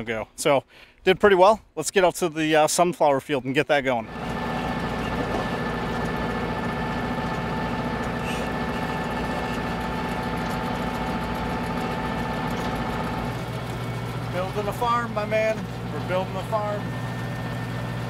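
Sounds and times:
steady whine: 0:04.0 - 0:18.0
tractor diesel engine running: 0:04.0 - 0:18.0.

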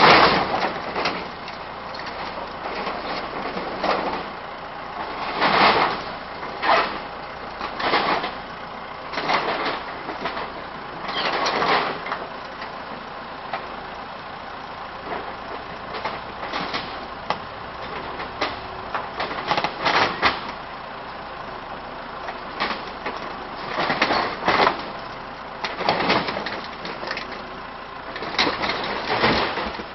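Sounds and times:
crunching and scraping of sheet metal: 0:00.0 - 0:12.3
backhoe engine running: 0:00.0 - 0:29.9.

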